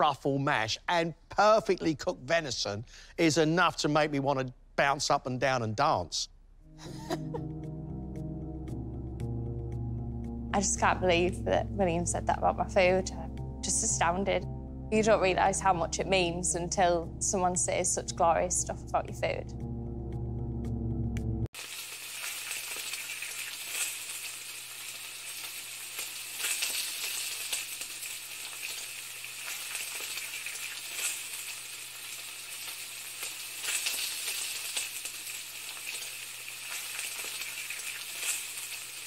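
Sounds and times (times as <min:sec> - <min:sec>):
food sizzling in a pan: 0:21.6 - 0:39.0.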